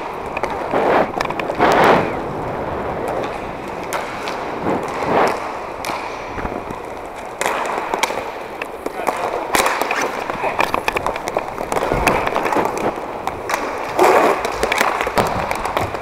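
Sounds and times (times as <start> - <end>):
skate wheels rolling on plastic floor: 0.0 - 16.0
knocks and scrapes of sticks: 0.3 - 2.2.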